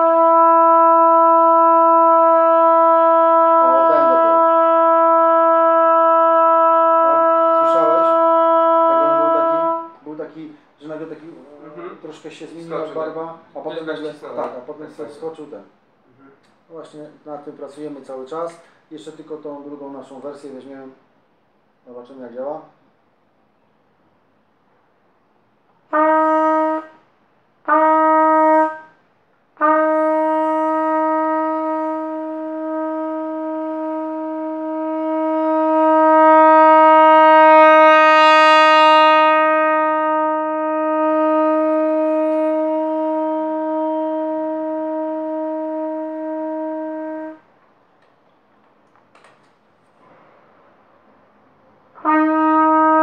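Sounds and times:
trumpet playing notes: 0:00.0 - 0:10.0, 0:25.9 - 0:29.0, 0:29.6 - 0:47.5, 0:51.9 - 0:53.0.

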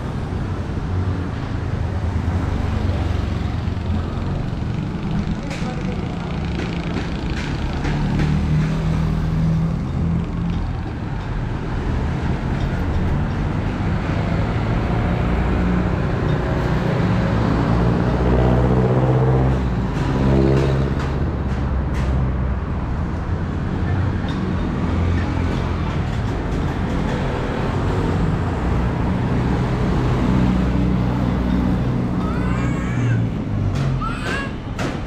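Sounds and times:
vehicle engines running: 0:00.0 - 0:35.0
loud engine passing: 0:13.4 - 0:21.7.

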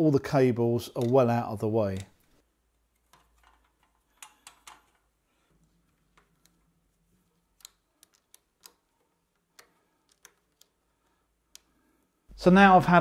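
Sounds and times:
plastic cable clips clicking: 0:07.5 - 0:10.8.

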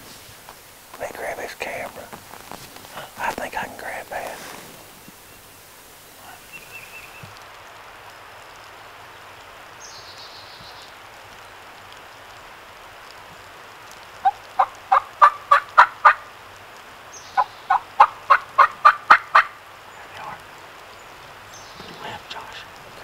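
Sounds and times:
turkey calling: 0:14.2 - 0:16.3, 0:17.4 - 0:20.2.

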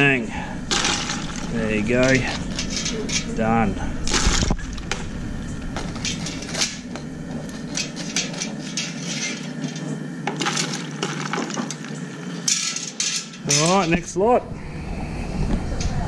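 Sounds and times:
low rumble: 0:00.0 - 0:08.2, 0:14.4 - 0:16.0
metal cookware clattering: 0:00.7 - 0:03.5, 0:05.7 - 0:14.0.

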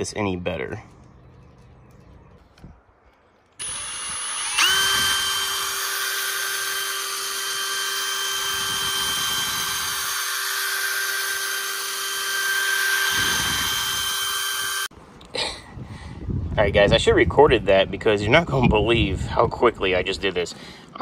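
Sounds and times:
cordless drill whining: 0:03.6 - 0:14.9.

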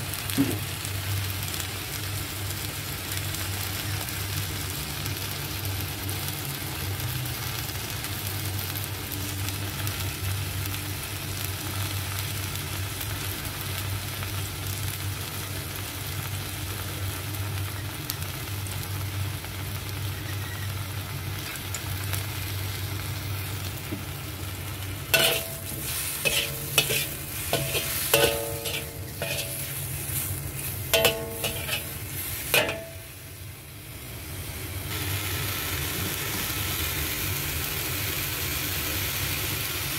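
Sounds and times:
mushrooms sizzling in a wok: 0:00.0 - 0:39.9
metal spatula scraping a wok: 0:25.0 - 0:33.2.

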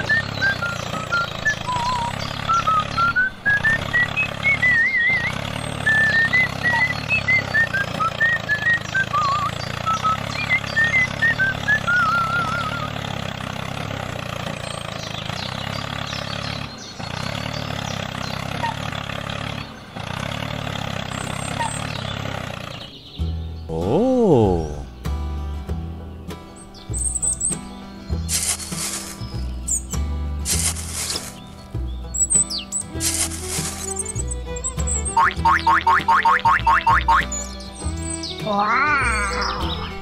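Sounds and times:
steady engine-like rumble: 0:00.0 - 0:40.0
warbling whistle-like melody: 0:10.8 - 0:12.9.

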